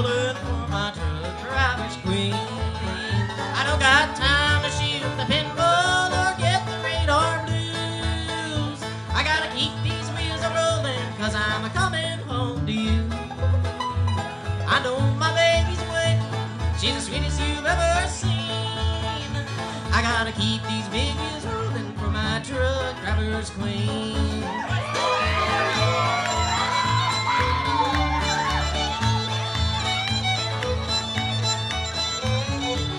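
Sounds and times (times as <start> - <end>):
man singing: 0.0 - 13.4, 14.6 - 26.1
fiddle sliding bowed notes: 0.0 - 22.8, 23.6 - 32.9
bluegrass band playing: 0.0 - 32.9.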